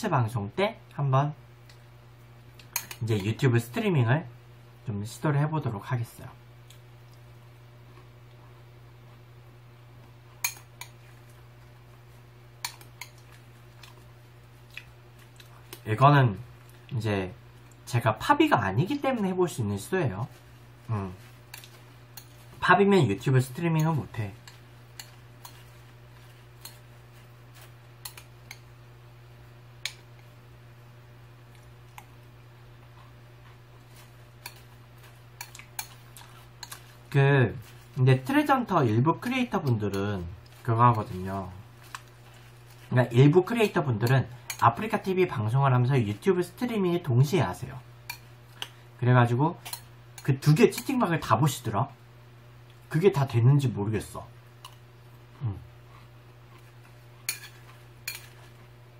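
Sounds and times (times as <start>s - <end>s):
steady low hum: 0.0s - 58.9s
metal spoon clinking against bowl: 57.3s - 58.4s.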